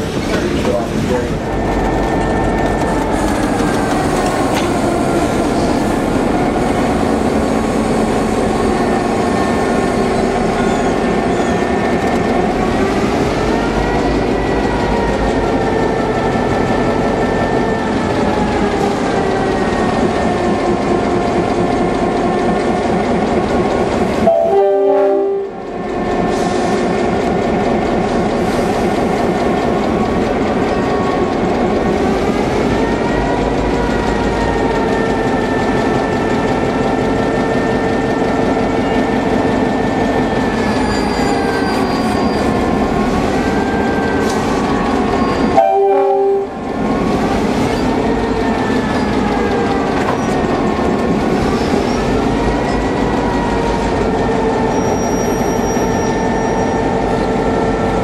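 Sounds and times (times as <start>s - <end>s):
locomotive engines droning: 0.0s - 58.0s.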